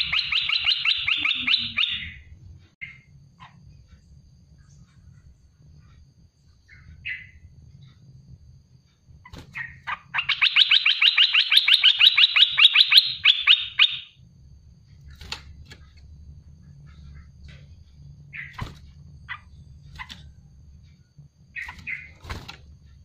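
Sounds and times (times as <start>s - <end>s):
bird calling repeated notes: 0.0s - 3.6s, 9.2s - 14.2s.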